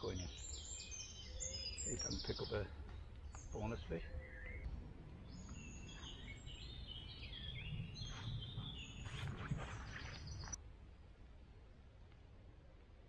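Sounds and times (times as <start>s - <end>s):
birds singing: 0.0s - 10.6s
low outdoor background noise: 0.0s - 13.0s.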